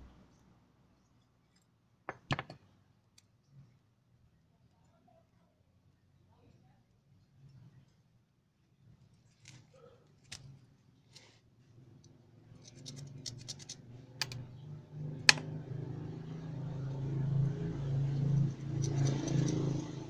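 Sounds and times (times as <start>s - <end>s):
engine hum: 12.4s - 20.0s
metal pick scratching and clicking: 12.5s - 14.4s.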